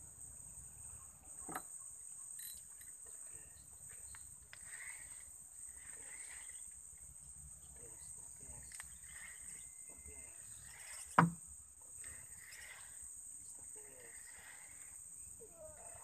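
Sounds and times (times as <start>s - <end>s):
high-pitched insect drone: 0.0s - 16.0s.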